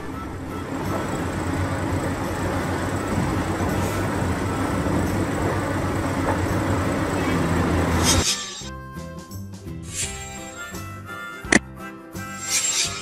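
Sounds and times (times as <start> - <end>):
excavator diesel engine humming: 0.0 - 8.7.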